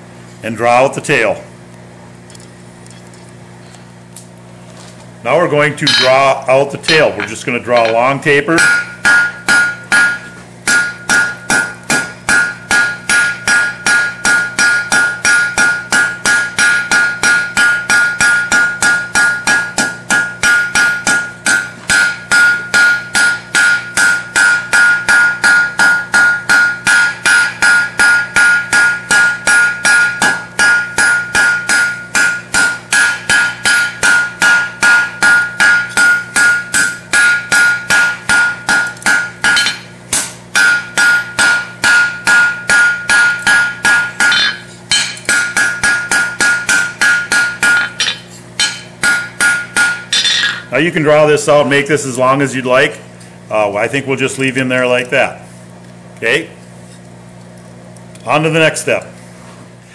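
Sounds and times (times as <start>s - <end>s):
hammer blows on anvil: 5.8s - 50.4s
anvil ringing: 5.8s - 50.6s.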